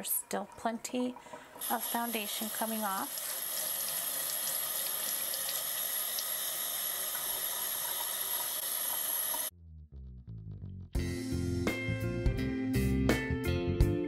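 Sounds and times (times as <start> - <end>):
faucet running into steel sink: 0.0 - 9.5.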